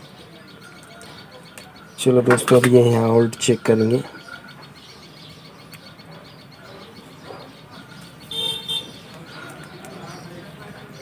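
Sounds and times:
horn tooting: 8.2s - 9.1s.

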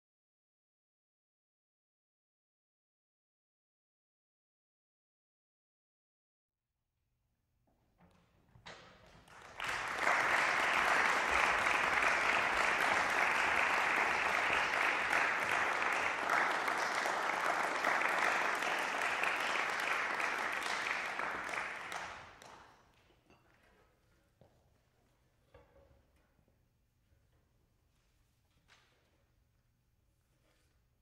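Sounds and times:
audience applauding: 9.1s - 22.8s.

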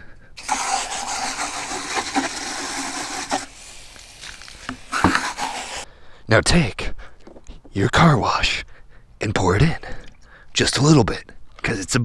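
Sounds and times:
hose nozzle spraying water: 0.4s - 5.9s.

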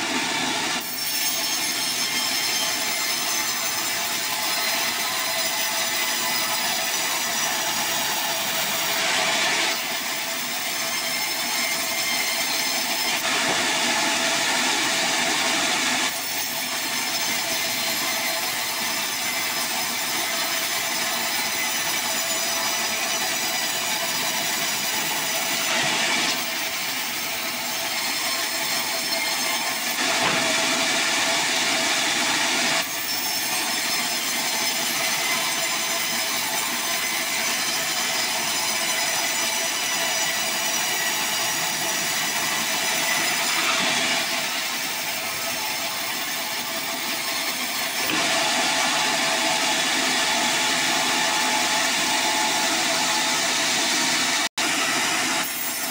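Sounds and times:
band sawmill whining: 39.7s - 55.9s.

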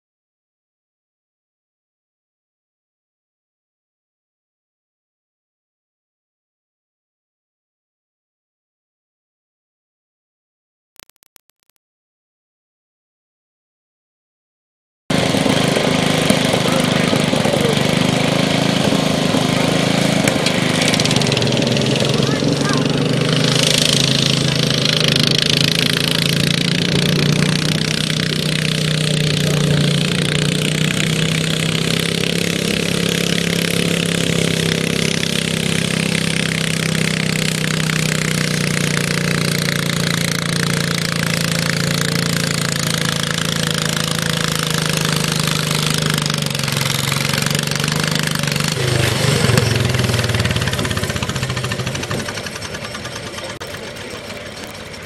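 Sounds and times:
tractor engine running under load: 15.1s - 55.0s.

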